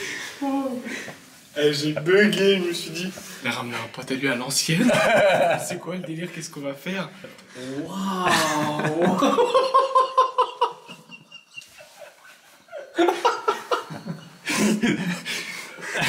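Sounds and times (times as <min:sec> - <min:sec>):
hearty human laughter: 0:04.8 - 0:05.7, 0:08.2 - 0:16.0.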